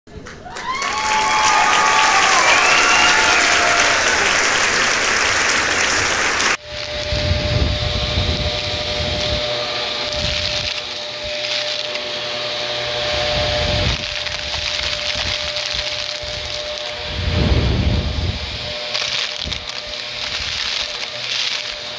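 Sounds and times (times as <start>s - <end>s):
applause and cheering: 0.1s - 6.6s
vacuum cleaner running: 1.3s - 21.9s.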